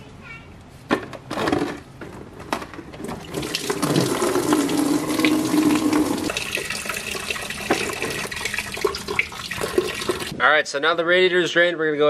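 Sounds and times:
coolant pouring into bucket: 3.2s - 10.3s.

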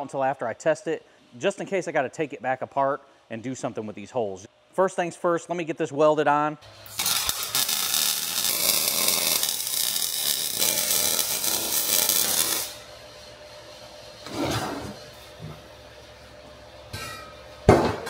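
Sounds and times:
arc welding crackling hiss: 6.7s - 14.3s
steel pieces scraping: 6.9s - 12.8s.

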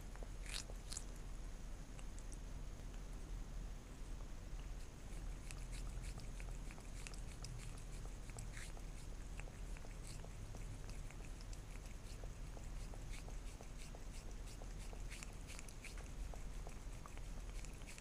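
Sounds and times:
cat licking wet clicks: 0.2s - 1.2s, 5.1s - 18.0s.

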